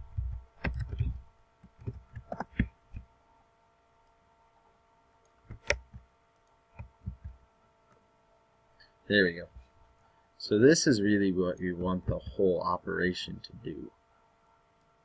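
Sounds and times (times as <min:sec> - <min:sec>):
faint electrical hum: 0:00.0 - 0:15.0
keyboard typing: 0:00.2 - 0:03.0
mouse clicks: 0:05.2 - 0:07.4.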